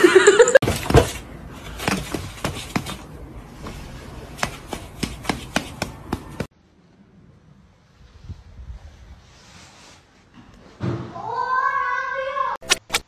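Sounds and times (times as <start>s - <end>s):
thump: 10.4s - 11.2s.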